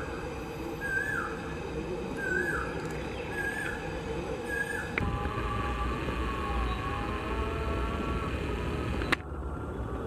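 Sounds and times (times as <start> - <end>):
bird calling: 0.0 - 5.0
low steady rumble: 1.4 - 10.0.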